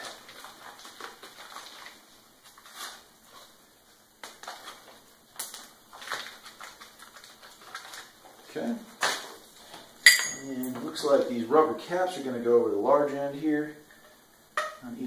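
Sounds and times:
plastic bag crinkling: 0.0 - 3.6, 4.2 - 9.9.

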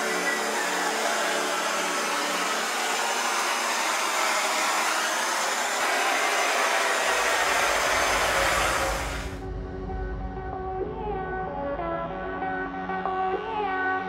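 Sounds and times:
hot-air blower blowing: 0.0 - 9.4.

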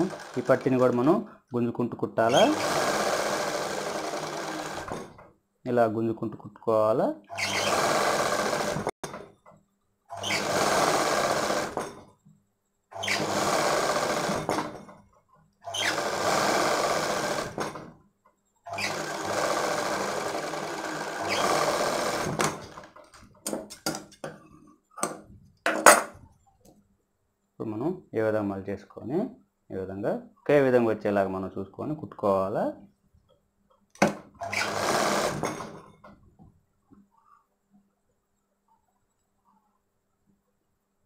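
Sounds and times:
sewing machine stitching: 0.0 - 1.2, 2.3 - 5.2, 7.3 - 9.2, 10.1 - 12.0, 13.0 - 14.9, 15.6 - 17.9, 18.6 - 23.2, 34.0 - 36.1.

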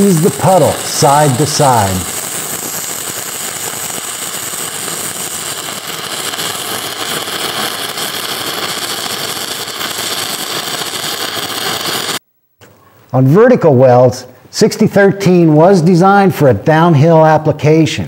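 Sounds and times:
welding arc crackling and sizzling: 0.0 - 12.2.

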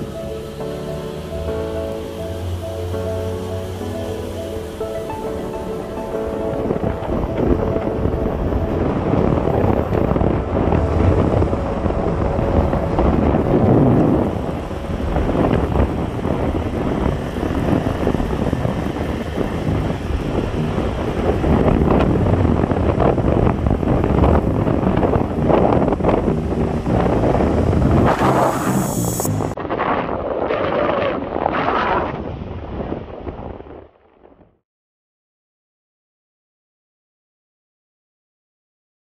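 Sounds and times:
road and engine noise: 0.0 - 29.6
wind buffeting microphone: 0.0 - 34.4.

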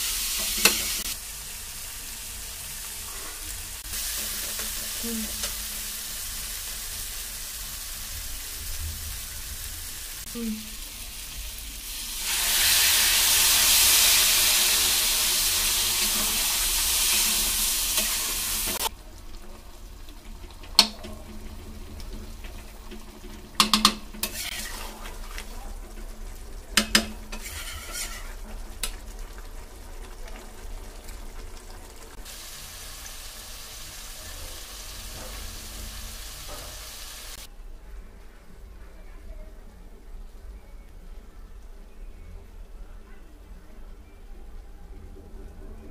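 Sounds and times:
curry sizzling in pan: 0.0 - 37.5
spatula scraping metal pan: 24.2 - 25.4, 27.3 - 28.5.

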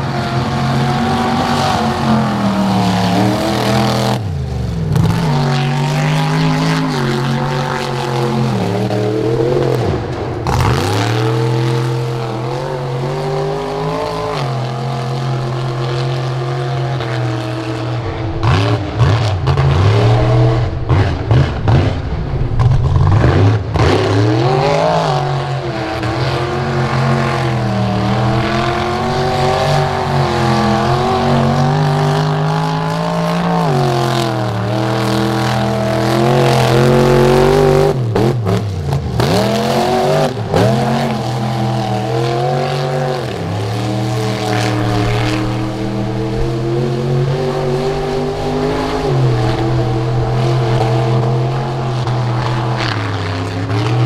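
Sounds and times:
truck engine revving in mud: 0.0 - 54.0.

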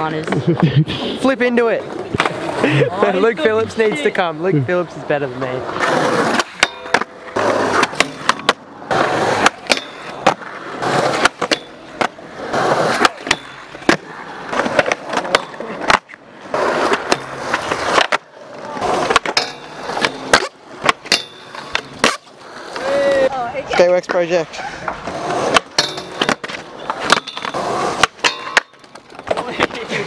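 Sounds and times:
skateboard wheels rolling on concrete: 0.0 - 30.0
skateboard grinding on metal rail: 5.6 - 30.0
skateboard pops and landings: 5.8 - 23.3, 25.4 - 29.8.

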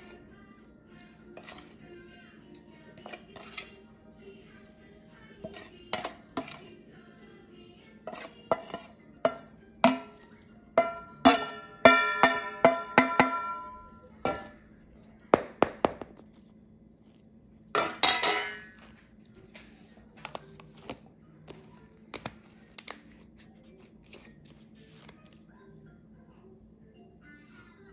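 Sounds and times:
spoon clinking against dishes: 1.0 - 1.8, 3.0 - 4.0, 5.4 - 6.8, 8.0 - 14.6, 17.7 - 18.9.

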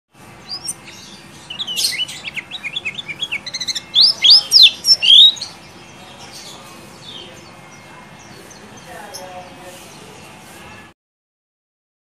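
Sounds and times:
bird chirping and trilling: 0.4 - 9.4
loud bird whistles: 1.5 - 5.5.

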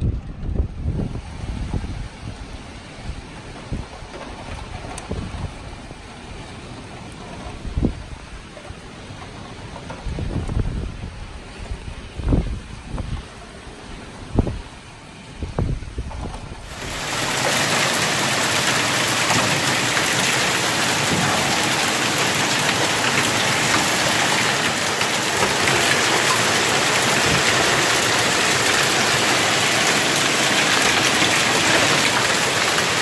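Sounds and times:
wind buffeting microphone: 0.0 - 33.0
hail and rain on paving: 2.4 - 12.4, 16.0 - 33.0.

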